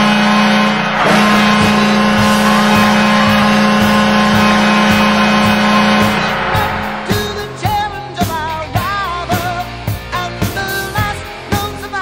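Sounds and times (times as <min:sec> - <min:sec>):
goal horn blast: 0:00.0 - 0:08.4
thumping beat: 0:01.0 - 0:09.0.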